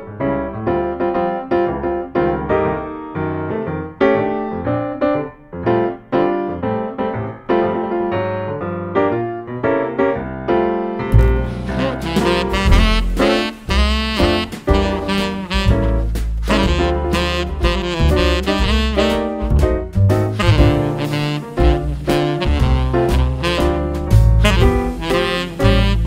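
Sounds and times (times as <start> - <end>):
piano playing: 0.0 - 26.0
music with deep bass: 11.2 - 26.0.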